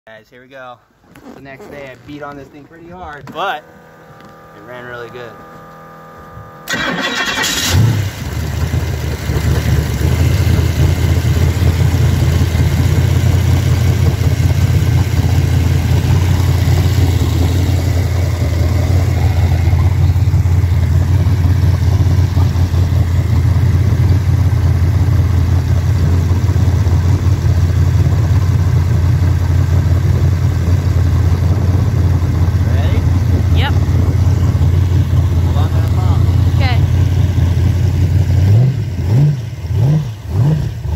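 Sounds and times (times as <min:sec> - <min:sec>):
boat engine roaring: 0:03.1 - 0:27.0, 0:31.4 - 0:40.9.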